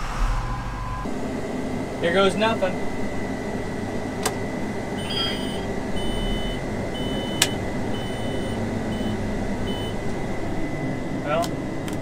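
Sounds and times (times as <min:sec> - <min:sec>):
engine and blower hum: 0:00.0 - 0:12.0
short high alarm beeps: 0:05.0 - 0:10.0.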